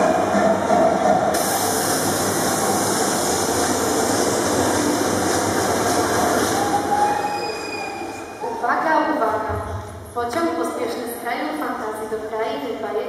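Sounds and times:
train running with hiss: 0:00.0 - 0:08.3.

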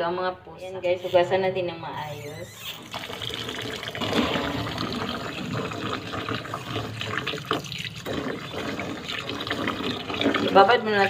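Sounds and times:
water pouring into a bowl: 0:02.8 - 0:11.0.

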